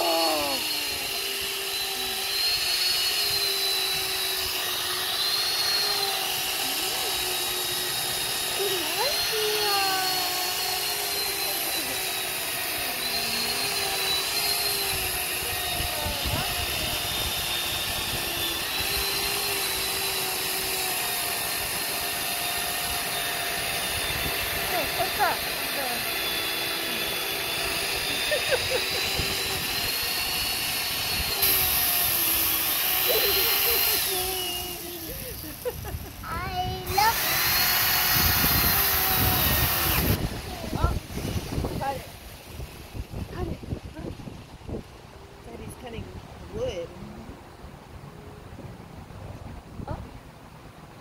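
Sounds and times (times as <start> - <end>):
chainsaw running at high speed: 0.0 - 46.9
wind rumbling on microphone: 14.8 - 19.2, 35.2 - 51.0.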